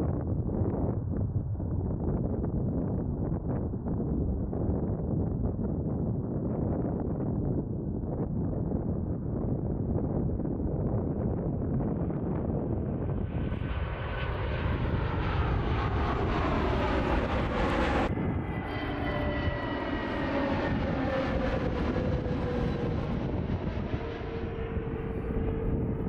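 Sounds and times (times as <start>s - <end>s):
airliner engines passing: 9.4s - 26.0s.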